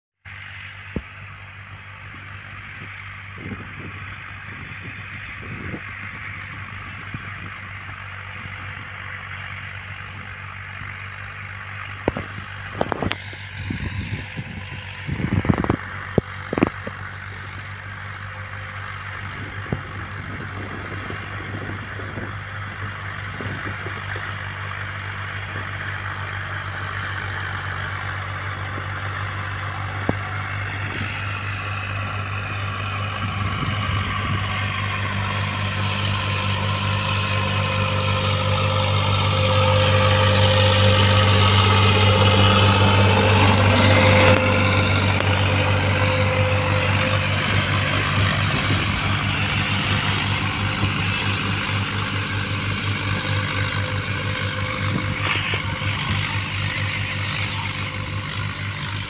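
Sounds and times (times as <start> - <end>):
tractor diesel engine under load: 0.2 - 59.0.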